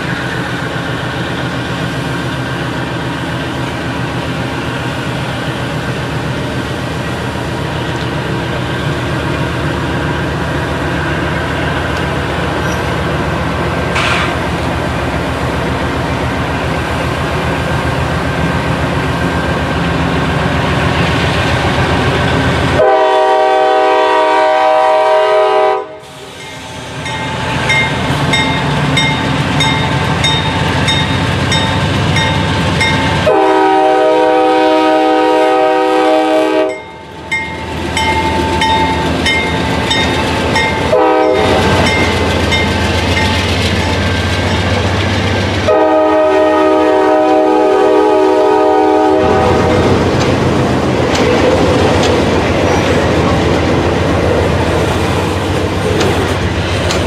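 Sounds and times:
train engine and wheels rumbling: 0:00.0 - 0:57.0
train horn blast: 0:22.7 - 0:26.1, 0:33.2 - 0:36.8, 0:40.8 - 0:41.9, 0:45.6 - 0:49.8.

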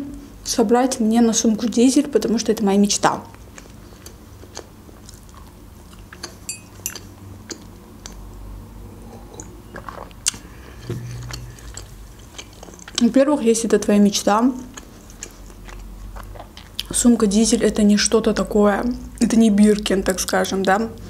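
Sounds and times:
person chewing: 0:03.5 - 0:08.2, 0:09.4 - 0:13.0, 0:14.6 - 0:16.9.

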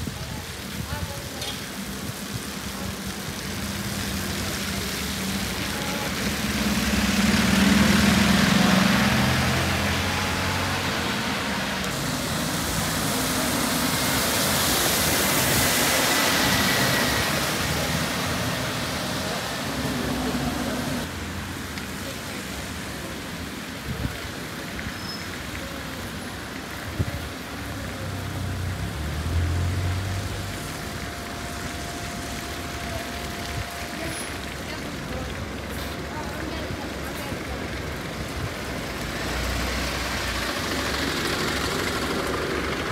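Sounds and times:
low traffic rumble: 0:00.0 - 0:42.9
vehicle passing: 0:04.9 - 0:21.3, 0:28.0 - 0:42.9.

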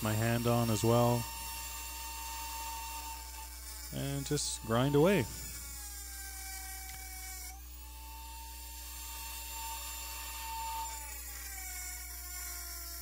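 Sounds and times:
rotary tool whining: 0:00.0 - 0:13.0.

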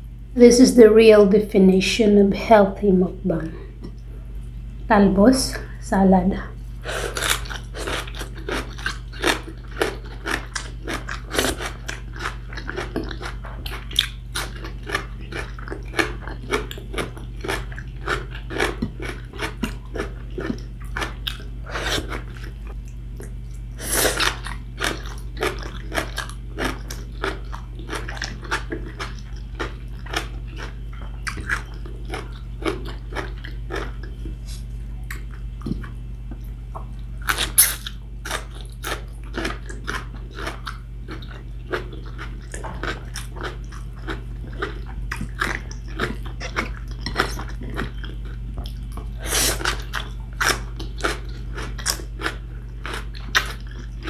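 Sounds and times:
steady low hum: 0:00.0 - 0:54.0
chewing and crunching salad: 0:06.6 - 0:54.0.

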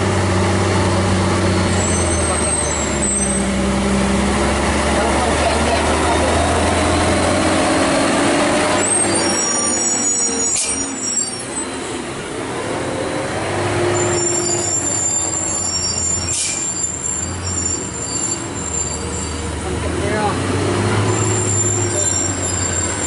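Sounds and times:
truck diesel engine running: 0:00.0 - 0:09.5
brake squeal: 0:00.9 - 0:04.0, 0:05.7 - 0:13.2, 0:13.8 - 0:23.0.

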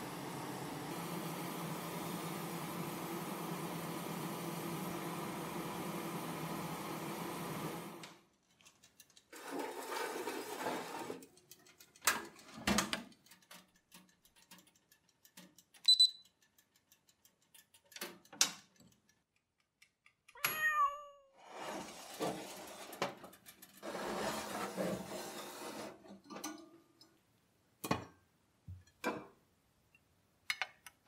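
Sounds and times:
short high electronic beep: 0:15.9 - 0:16.2
cat meowing: 0:20.4 - 0:21.4.

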